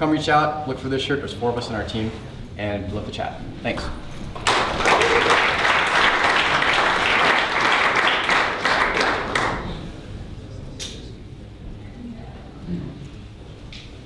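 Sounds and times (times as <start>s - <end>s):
audience applauding: 4.3s - 9.9s.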